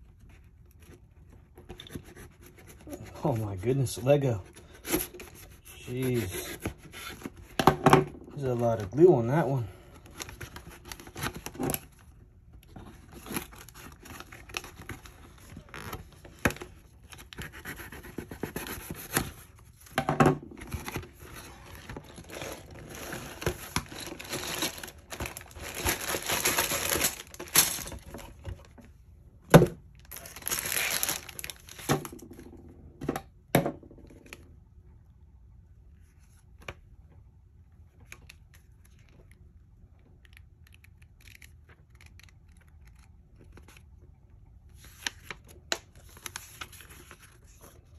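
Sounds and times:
plastic bags crinkling: 21.7 - 28.4, 30.0 - 32.2.

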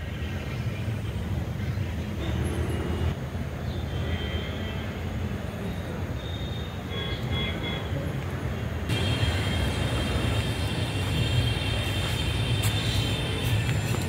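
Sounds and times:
low outdoor rumble: 8.9 - 14.0.

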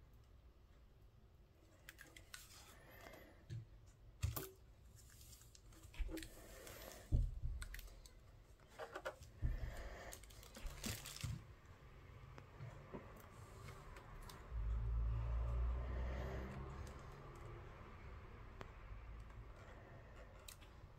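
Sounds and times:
plastic clicks and rustling: 5.2 - 9.4, 10.1 - 11.7.

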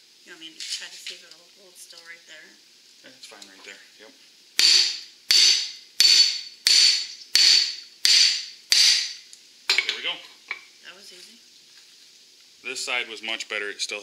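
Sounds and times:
ringing hammer blows on steel: 4.6 - 9.2.

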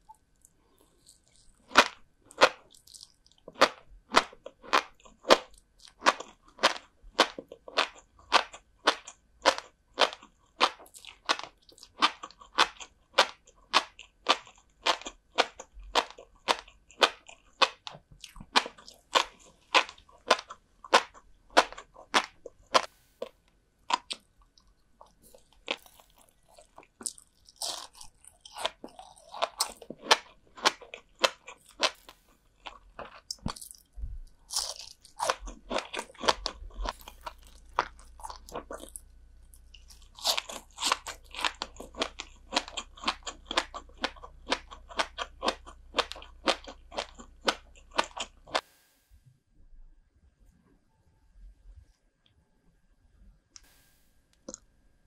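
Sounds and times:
crisp crunching while chewing: 0.0 - 23.3, 23.9 - 48.6.

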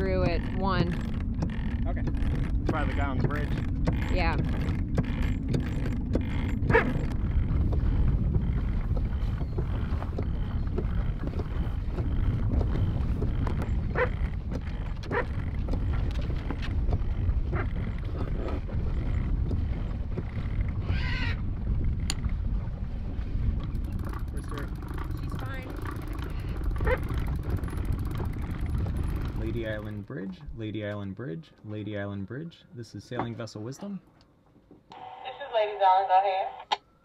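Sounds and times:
rigging clicks and knocks: 0.0 - 20.8, 23.6 - 31.0
wind rumbling on microphone: 0.0 - 30.8
winch clicking: 23.6 - 29.9.

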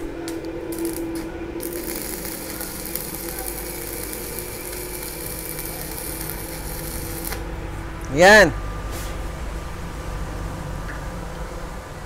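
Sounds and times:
welding arc crackling hiss: 0.0 - 7.5.

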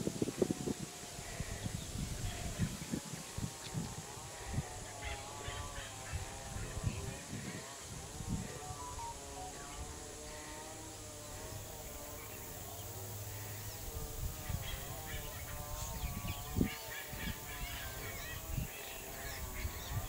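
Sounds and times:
birds chirping: 0.7 - 20.0.

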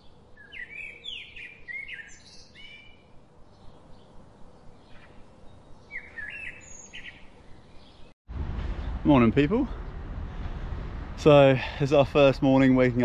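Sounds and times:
small birds chirping: 0.0 - 8.2.

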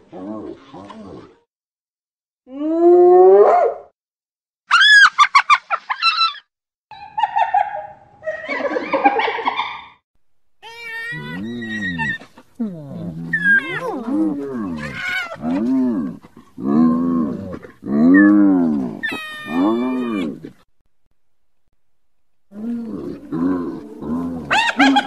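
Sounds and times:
hyenas calling: 10.6 - 16.9, 17.9 - 20.6, 22.5 - 25.0
hyena wavering moans: 10.7 - 20.5
hyena high-pitched giggling: 24.4 - 25.0.

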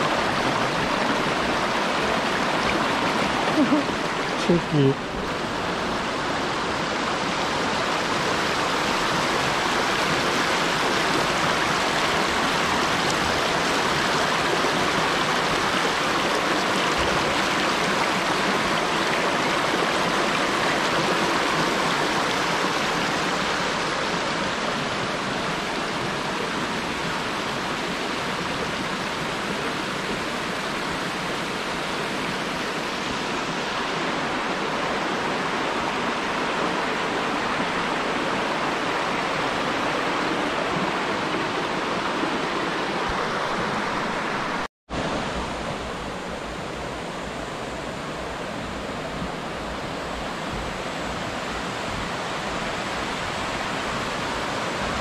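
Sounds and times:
flowing water rushing: 0.0 - 55.0.

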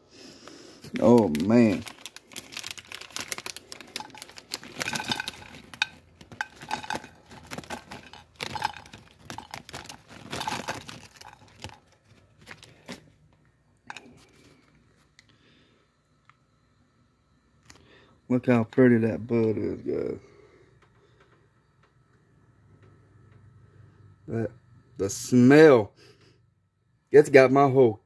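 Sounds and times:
plastic bag crinkling: 0.8 - 13.2.

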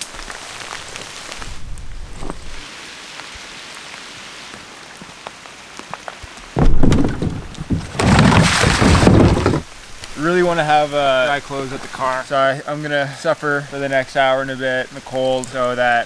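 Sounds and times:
steady rain: 0.0 - 16.0
loud close rustling: 6.6 - 9.8.

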